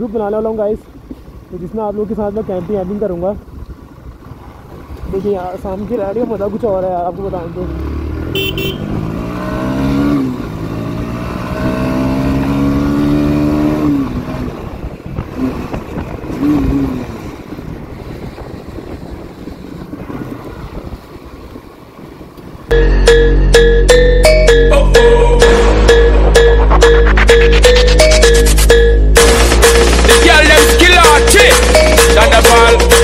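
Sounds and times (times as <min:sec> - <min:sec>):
motorcycle engine accelerating: 0:07.0 - 0:23.7
steady noise: 0:22.7 - 0:33.0.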